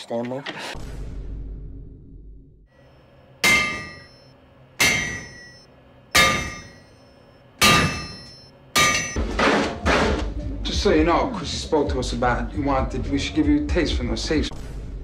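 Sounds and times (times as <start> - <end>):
tool hammering on metal safe: 3.4 - 4.1, 4.8 - 5.6, 6.2 - 6.9, 7.6 - 9.7.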